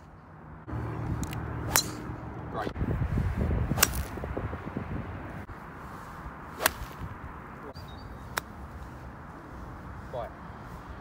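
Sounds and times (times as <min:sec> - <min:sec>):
wind rumbling on microphone: 0:00.6 - 0:11.0
golf club striking ball: 0:01.2 - 0:02.2, 0:03.8 - 0:04.2, 0:06.6 - 0:07.0.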